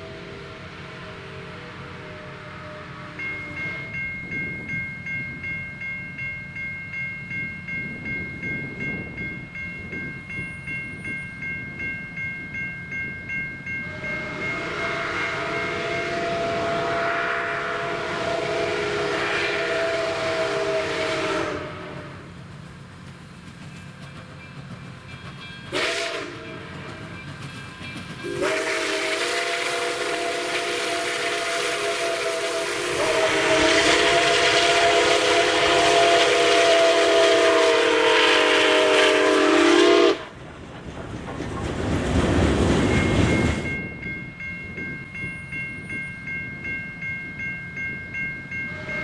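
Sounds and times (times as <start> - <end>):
chime steam whistle blasts: 0.0 - 22.3, 25.3 - 40.4, 47.3 - 49.0
steam rushing: 13.8 - 44.0.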